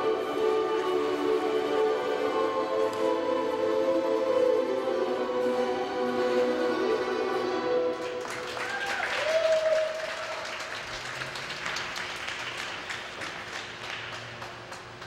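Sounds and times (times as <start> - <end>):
audience clapping: 7.9 - 15.0.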